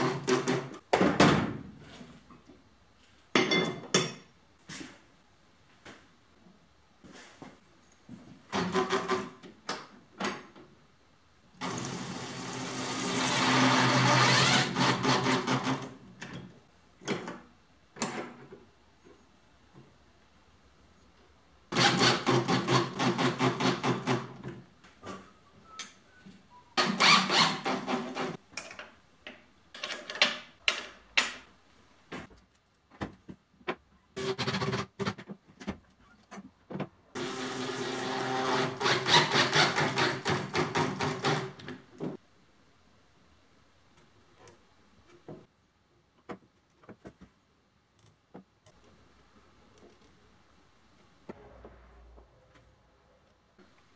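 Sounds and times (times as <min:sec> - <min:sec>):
power drill running: 0:37.2 - 0:39.9.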